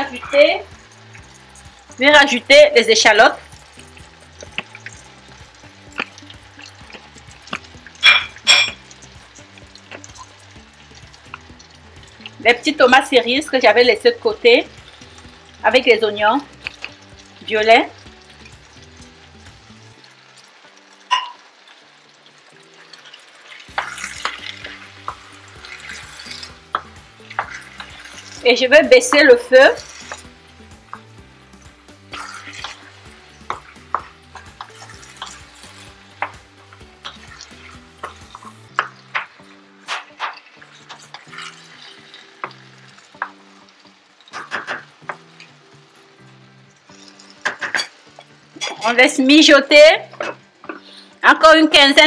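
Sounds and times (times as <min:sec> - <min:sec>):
faint frying sizzle: 0:00.0 - 0:52.0
spoon scraping pan: 0:22.8 - 0:43.4
wooden spoon knocking on pan: 0:26.7 - 0:27.9, 0:33.4 - 0:35.4, 0:38.0 - 0:40.3.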